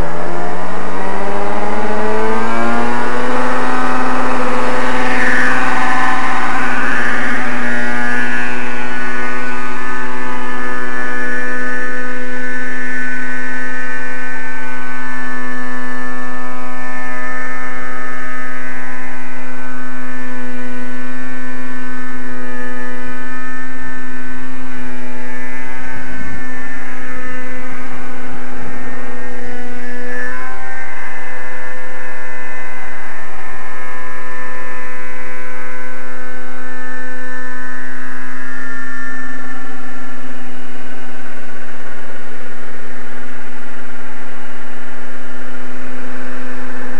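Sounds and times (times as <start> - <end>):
rc helicopter engine running: 0.0 - 46.9.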